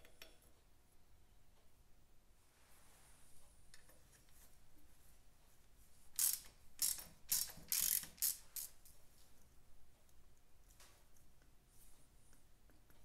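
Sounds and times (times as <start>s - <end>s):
socket ratchet clicking: 6.2s - 8.8s.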